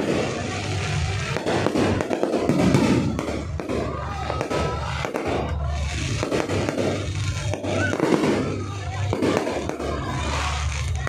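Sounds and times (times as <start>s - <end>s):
fireworks bangs and cracks: 0.0s - 11.0s.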